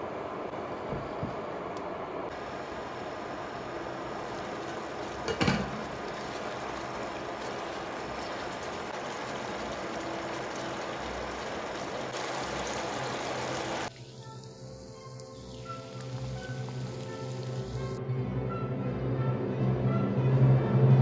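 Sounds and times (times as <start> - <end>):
chicken sizzling in a frying pan: 2.3 - 18.0.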